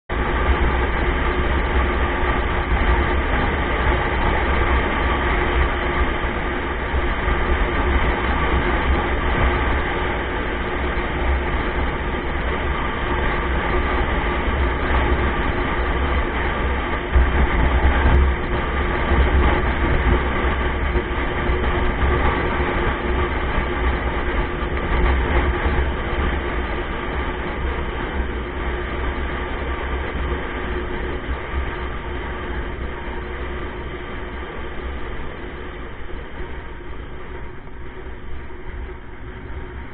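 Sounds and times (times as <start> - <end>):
faint constant hum: 0.1 - 39.9
vehicle engine rumble: 0.1 - 39.9.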